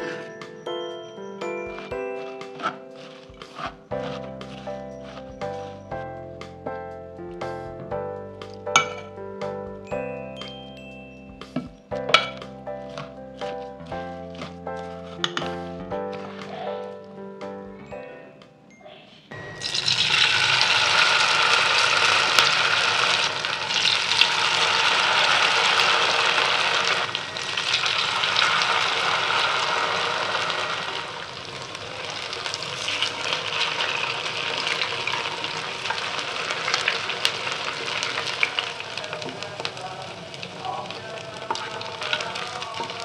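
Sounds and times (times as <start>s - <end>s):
batter deep-frying in oil: 19.5s - 43.0s.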